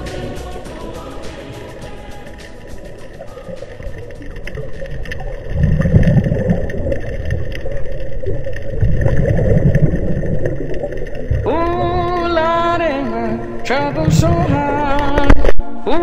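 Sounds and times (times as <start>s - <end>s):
person singing: 0.0s - 4.0s, 11.4s - 16.0s
underwater hiss: 0.0s - 11.3s
diver exhaling bubbles: 4.0s - 12.2s.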